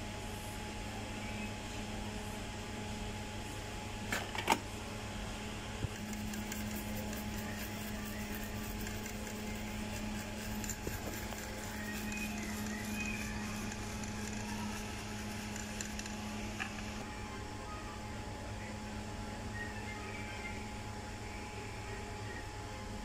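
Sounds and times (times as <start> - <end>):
electrical hum: 0.0 - 23.0
brush scrubbing circuit board: 5.9 - 17.0.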